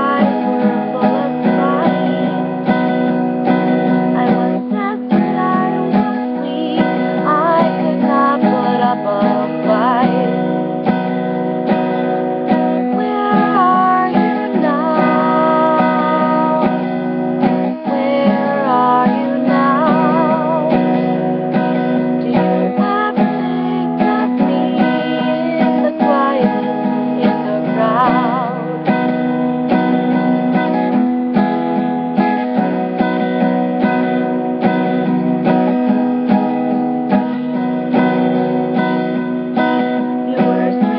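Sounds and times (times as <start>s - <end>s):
woman singing with vibrato: 0.0s - 11.1s, 11.7s - 30.9s, 39.6s - 40.9s
acoustic guitar strumming: 0.0s - 40.9s.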